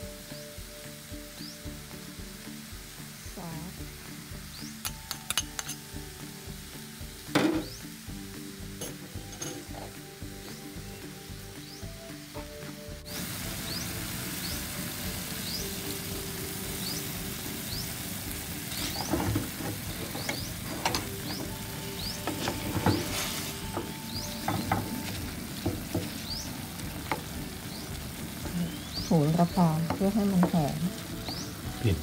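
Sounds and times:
food sizzling in a frying pan: 0:00.0 - 0:32.0
wooden spatula scraping a pan: 0:18.7 - 0:27.9.

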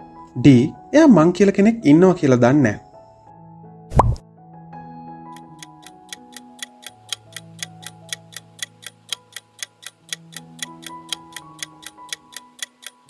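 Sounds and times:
soft background music: 0:00.0 - 0:13.0
countdown timer ticking: 0:05.3 - 0:13.0.

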